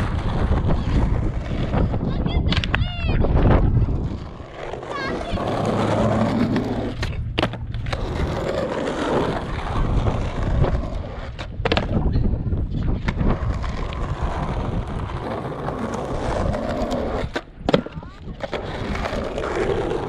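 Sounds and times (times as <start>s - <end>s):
skateboard clacks: 0.0s - 3.6s, 4.2s - 12.1s, 12.8s - 20.0s
skateboard wheels rolling on concrete: 0.0s - 20.0s.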